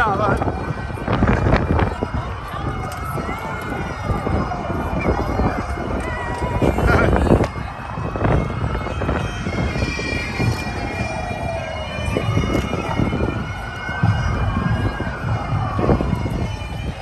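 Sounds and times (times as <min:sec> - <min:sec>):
emergency vehicle siren: 0:00.0 - 0:17.0
bagpipes playing: 0:04.6 - 0:17.0
low thumps: 0:05.6 - 0:17.0.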